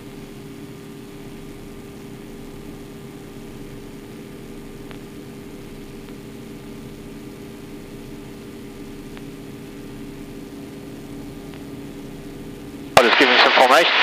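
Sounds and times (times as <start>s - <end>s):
muffled radial engine droning: 0.0s - 14.0s
faint ticks: 4.7s - 5.0s, 5.8s - 6.2s, 9.1s - 9.4s.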